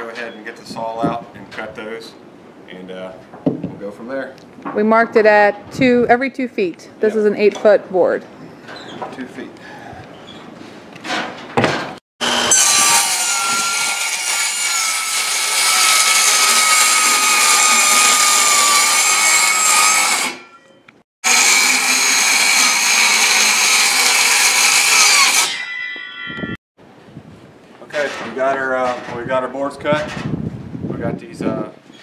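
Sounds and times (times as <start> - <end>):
circular saw cutting wood: 12.2 - 20.5, 21.2 - 26.0.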